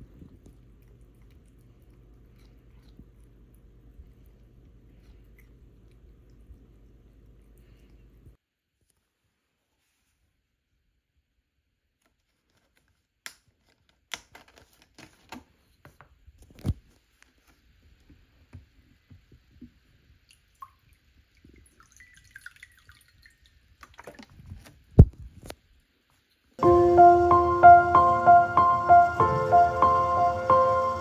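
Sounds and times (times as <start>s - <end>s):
water trickling into a glass: 20.6s - 23.6s.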